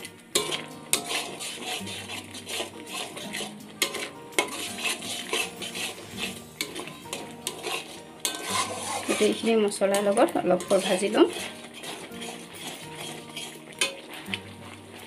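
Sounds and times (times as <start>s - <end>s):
spatula scraping metal pan: 0.0s - 15.0s.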